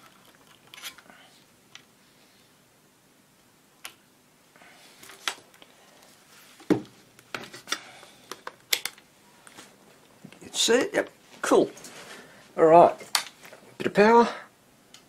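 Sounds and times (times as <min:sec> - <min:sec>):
small clicks and knocks of handling: 0:06.6 - 0:09.6.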